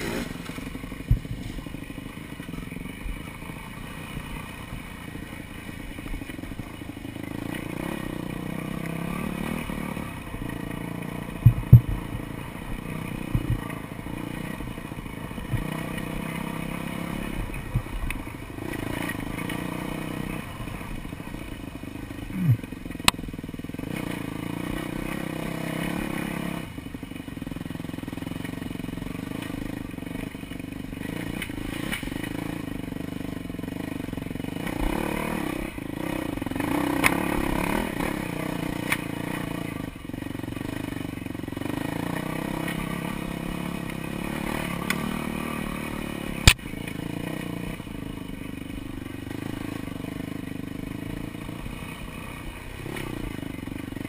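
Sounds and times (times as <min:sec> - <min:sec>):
dirt bike engine running: 0:00.0 - 0:54.0
hard knocks over bumps: 0:11.4 - 0:12.1.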